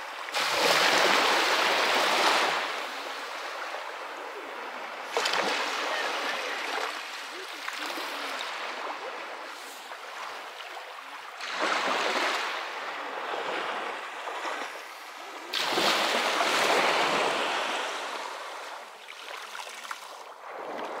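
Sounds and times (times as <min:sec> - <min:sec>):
waves washing on pebble beach: 0:00.2 - 0:03.0.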